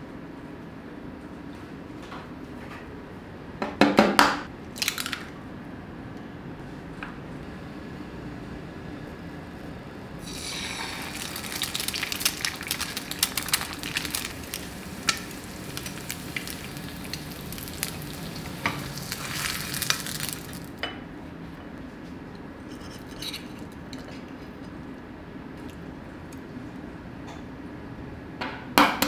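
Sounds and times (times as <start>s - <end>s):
egg sizzling and popping in oil: 10.2s - 20.8s.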